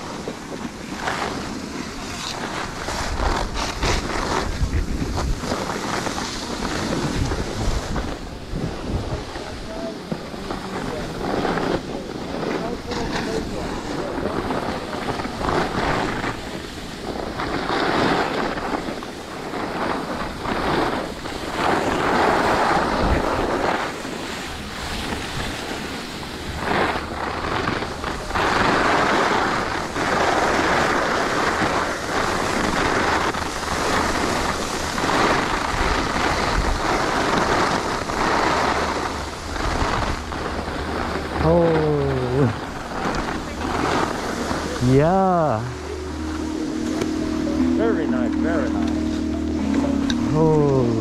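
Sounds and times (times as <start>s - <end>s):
skis scraping over snow: 0.0s - 51.0s
wind rushing over microphone: 0.0s - 51.0s.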